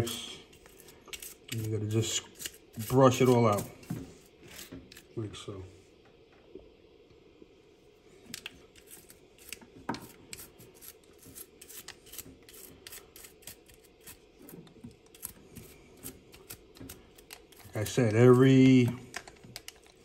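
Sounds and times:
toothbrush scrubbing plastic mesh: 0.6 - 3.8.

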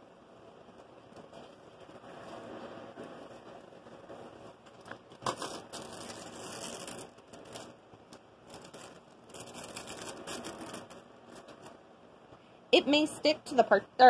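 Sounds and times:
parchment paper rustling: 0.6 - 11.8.

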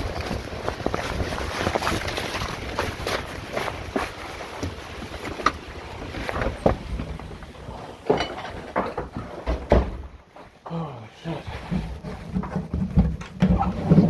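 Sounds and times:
knocks and thumps: 6.3 - 10.5, 11.6 - 14.0.

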